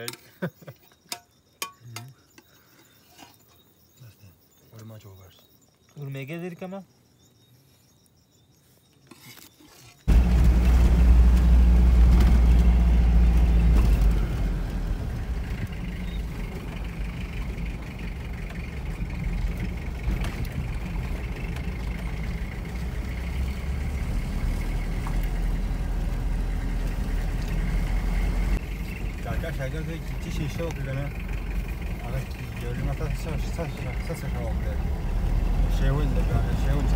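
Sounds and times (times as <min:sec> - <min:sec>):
vehicle engine and road rumble: 0:09.2 - 0:36.9.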